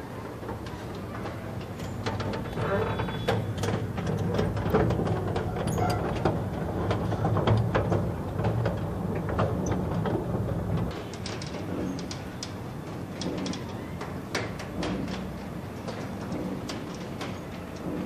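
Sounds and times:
conveyor humming: 0.0s - 18.0s
conveyor belt plates clanking: 0.1s - 18.0s.

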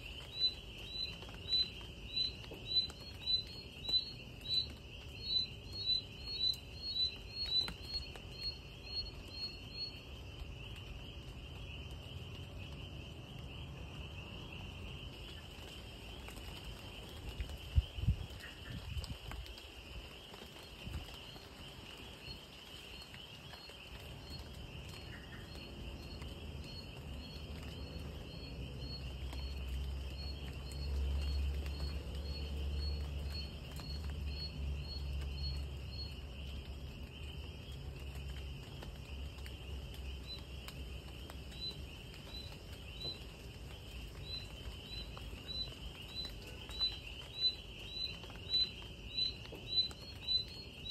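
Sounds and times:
insects trilling: 0.0s - 50.9s.

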